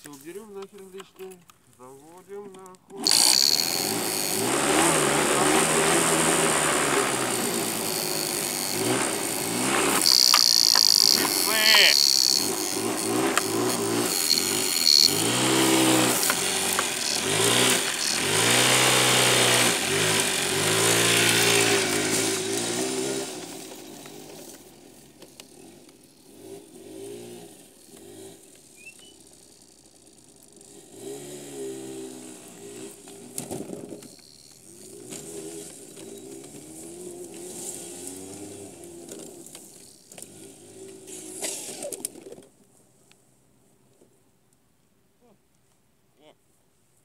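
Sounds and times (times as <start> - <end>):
motor scooter engine revving: 3.0 - 42.2.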